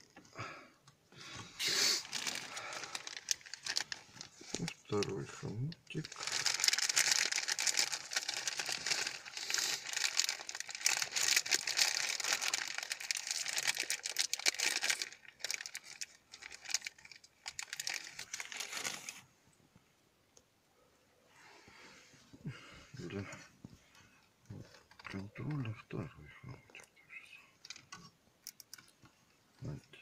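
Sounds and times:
plastic bag crinkling: 1.6s - 19.3s, 27.6s - 28.9s.

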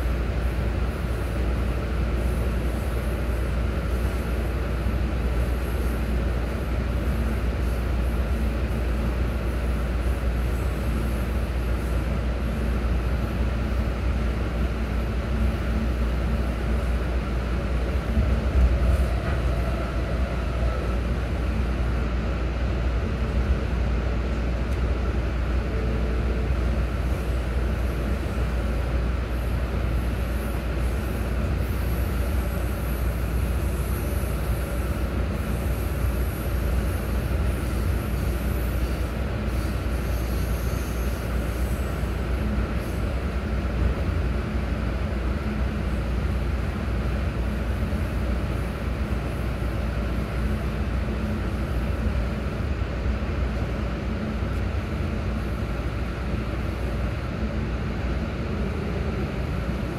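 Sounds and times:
train wheels rumbling on rail: 0.0s - 59.9s
train jolt: 16.4s - 22.0s.

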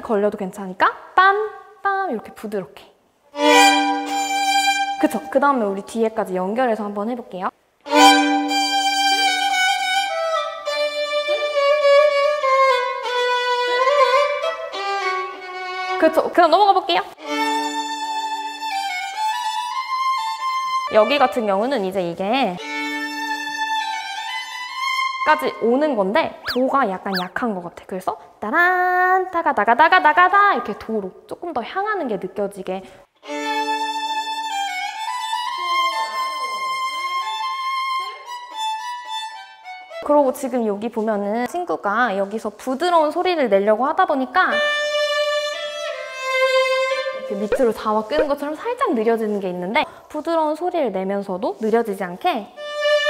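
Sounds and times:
slow violin melody: 3.3s - 5.4s, 7.8s - 16.2s, 17.2s - 21.5s, 22.6s - 25.4s, 33.2s - 40.1s, 44.5s - 47.5s, 52.6s - 53.0s.

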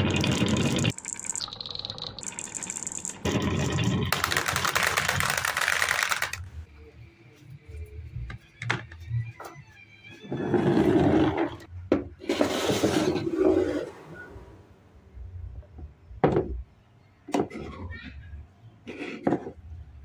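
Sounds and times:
marbles rattling into plastic truck: 4.1s - 6.4s.

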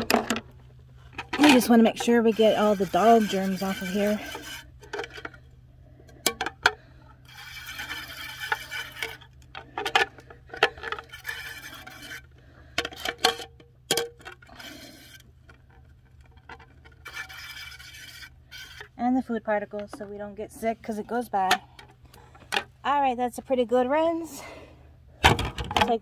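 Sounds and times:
garden sprayer hissing water: 1.4s - 4.7s.

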